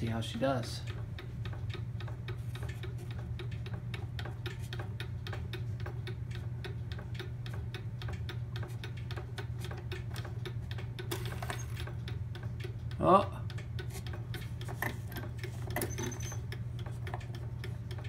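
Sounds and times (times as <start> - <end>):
clock ticking: 0.0 - 18.0
low steady hum: 0.0 - 18.0.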